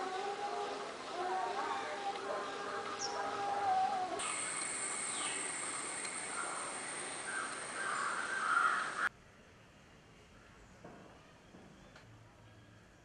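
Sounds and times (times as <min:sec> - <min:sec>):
bird calls: 0:02.3 - 0:09.1
insect drone: 0:04.2 - 0:09.1.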